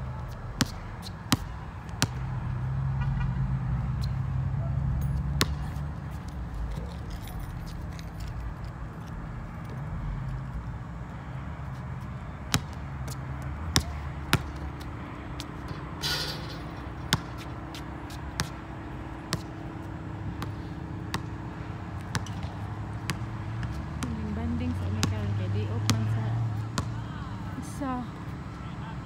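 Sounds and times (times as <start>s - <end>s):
basketball bouncing on concrete: 0.2s - 2.4s, 5.1s - 7.0s, 12.5s - 27.0s.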